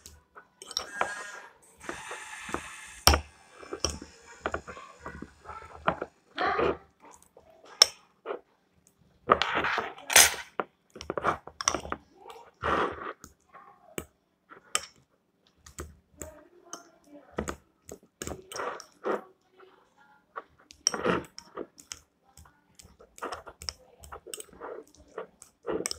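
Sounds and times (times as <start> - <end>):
spoon scraping a bowl: 0.6 - 6.8, 18.2 - 19.2, 22.8 - 25.9.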